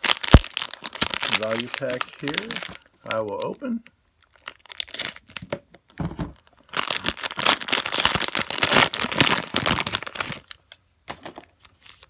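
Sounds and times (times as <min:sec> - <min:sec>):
knife cutting plastic wrapper: 0:00.0 - 0:02.8, 0:06.7 - 0:10.6
plastic crinkling and tearing: 0:00.0 - 0:10.8.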